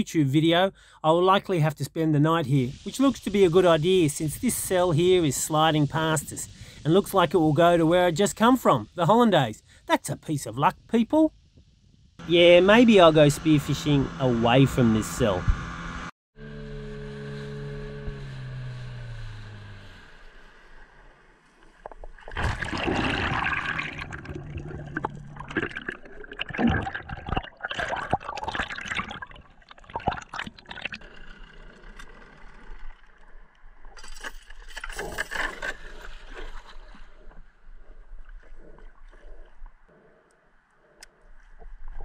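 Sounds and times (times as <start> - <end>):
outboard motor slowing: 12.2 - 21.9, 30.6 - 34.0
water splashing and bubbling: 21.8 - 39.9.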